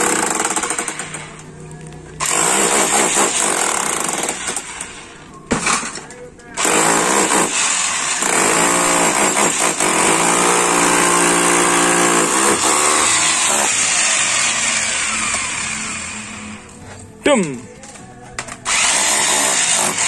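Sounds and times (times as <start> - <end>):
demolition hammer chipping concrete: 0.0 - 1.4, 2.2 - 4.9, 5.5 - 16.1, 18.7 - 20.0.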